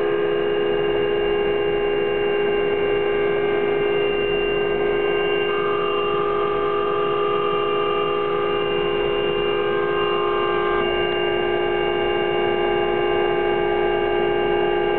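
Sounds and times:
helicopter engine whine: 4.0 - 13.8.

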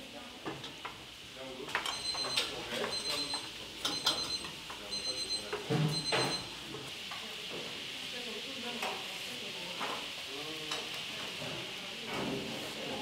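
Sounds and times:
steady kitchen hiss: 0.0 - 13.0
utensils clinking: 1.7 - 4.5.

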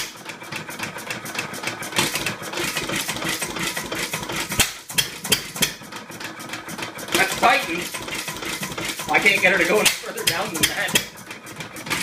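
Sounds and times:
engine metallic clatter: 0.0 - 12.0.

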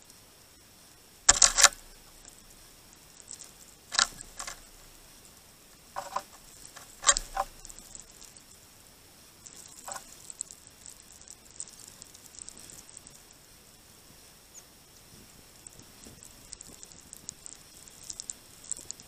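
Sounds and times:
birds scuffing on feeder: 1.3 - 2.6, 3.9 - 5.2, 5.9 - 8.3, 9.7 - 10.2.

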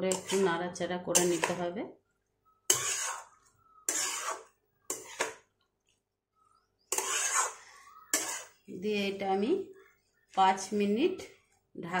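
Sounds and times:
metal spatula scraping pan: 0.0 - 1.8, 2.6 - 5.5, 6.8 - 9.4.

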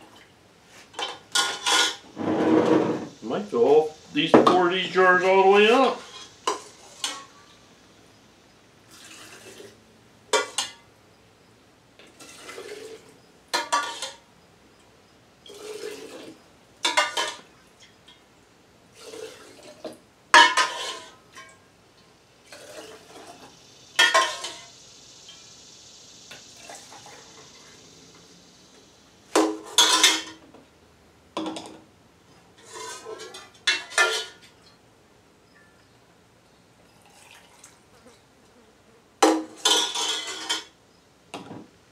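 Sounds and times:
metal ladle scraping a pot: 1.0 - 3.2, 20.4 - 21.2, 32.6 - 34.4, 39.6 - 40.7
liquid pouring into a glass jar: 8.9 - 9.8, 36.9 - 37.8.

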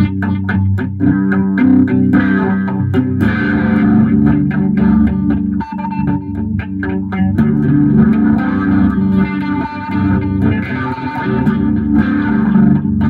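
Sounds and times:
guitar-led instrumental music: 0.0 - 13.0.

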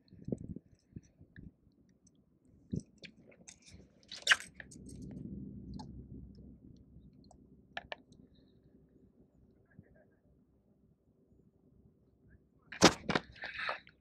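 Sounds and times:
reel low rumbling whir: 4.6 - 8.7.

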